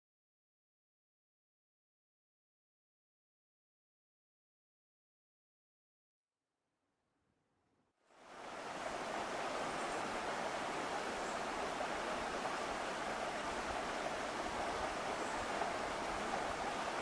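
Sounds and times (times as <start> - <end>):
stream rushing over rocks: 8.2 - 17.0.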